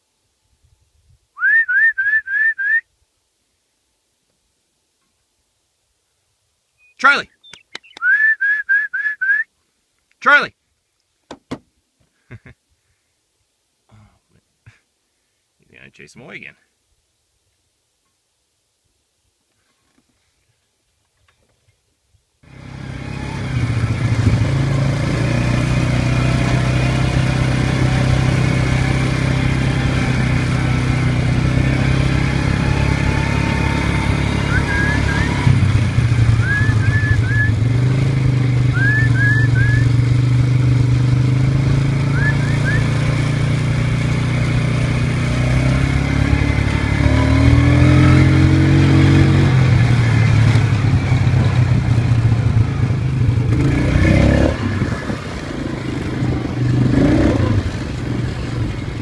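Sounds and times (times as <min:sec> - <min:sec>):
short high chirps: 0:06.8 - 0:09.4, 0:36.3 - 0:37.7
vehicle engine running: 0:22.5 - 0:59.0.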